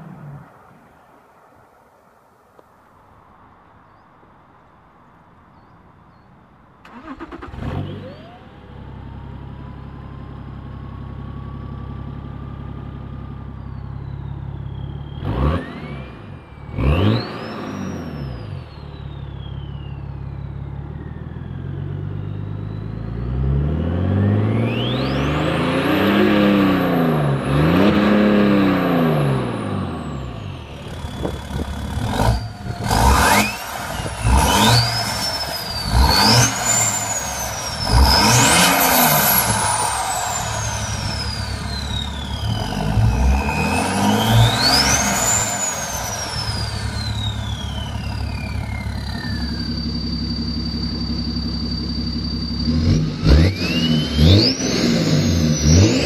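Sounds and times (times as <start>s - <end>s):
diesel engine idling and revving: 6.9s - 56.0s
turbo whistle: 44.4s - 56.0s.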